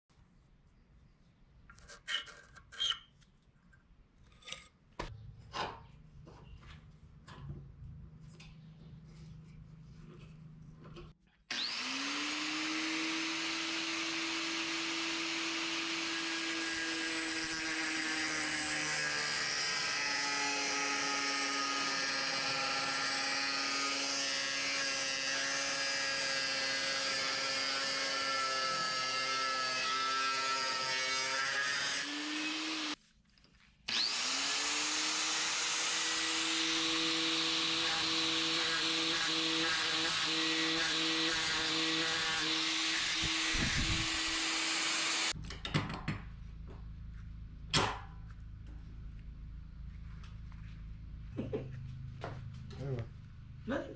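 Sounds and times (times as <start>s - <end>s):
angle grinder grinding steel: 11.5s - 33.0s, 33.9s - 45.4s.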